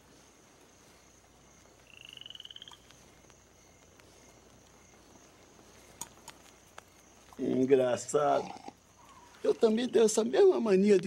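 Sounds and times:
faint high tone of night ambience: 0.0s - 11.0s
frog rattling trill: 1.9s - 2.9s.

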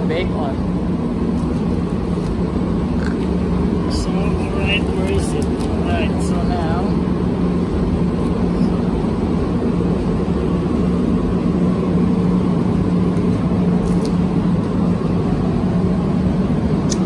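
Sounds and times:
constant low hum: 0.0s - 17.0s
ventilation fans rushing air: 0.0s - 17.0s.

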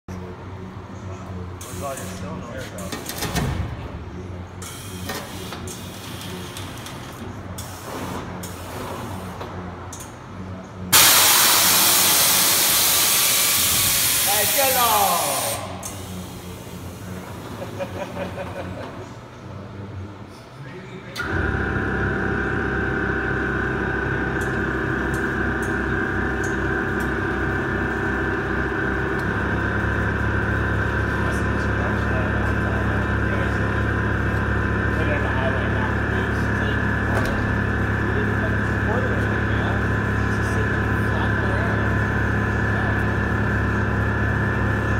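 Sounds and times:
short air hisses: 11.0s - 14.6s
loud air dumping hiss: 11.0s - 16.4s
low hum: 21.2s - 44.9s.

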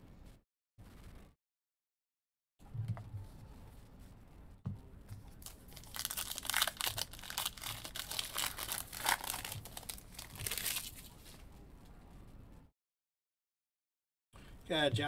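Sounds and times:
foil wrapper ripping: 5.4s - 11.1s
foil wrapper crinkling: 5.4s - 11.3s.

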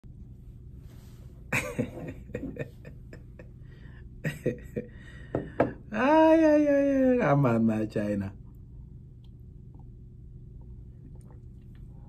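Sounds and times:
man laughing: 1.5s - 3.6s, 4.2s - 5.1s.

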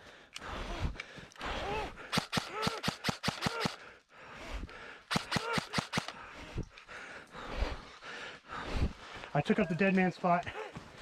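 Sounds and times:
person breathing hard: 0.0s - 9.3s
rapid sharp clicks: 2.1s - 3.9s, 5.1s - 6.2s.

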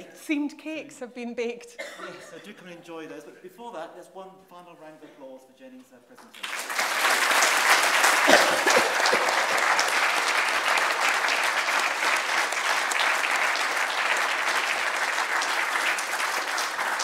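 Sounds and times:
audience applauding: 6.2s - 17.0s.

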